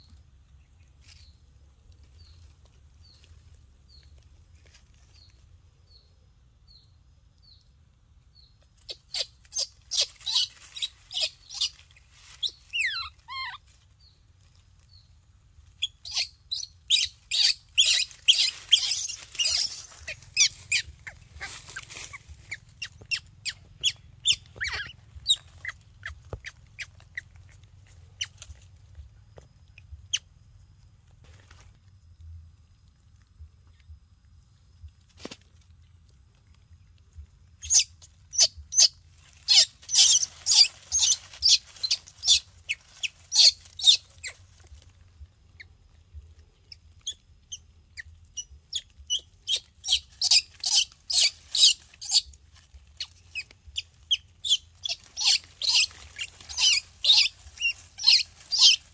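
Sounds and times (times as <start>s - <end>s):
baby monkey squeaking: 8.8s - 13.8s, 15.8s - 28.6s, 37.6s - 44.7s, 46.7s - 58.9s
dry leaves crackling and rustling: 8.8s - 29.1s, 37.7s - 46.0s, 48.7s - 58.9s.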